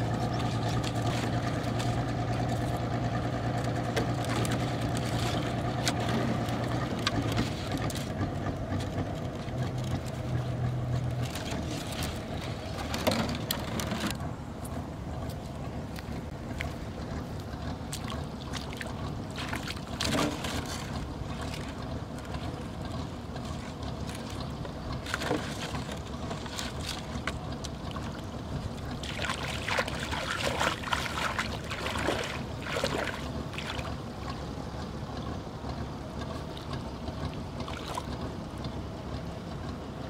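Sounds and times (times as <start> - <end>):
splashing of wading in river: 0.0 - 14.2, 15.3 - 40.0.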